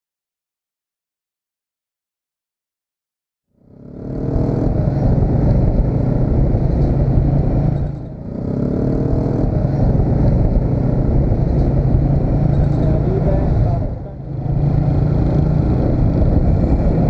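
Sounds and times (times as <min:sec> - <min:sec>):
surrounding traffic: 0:03.5 - 0:17.0
motorcycle engine running: 0:03.6 - 0:17.0
road noise: 0:03.6 - 0:17.0.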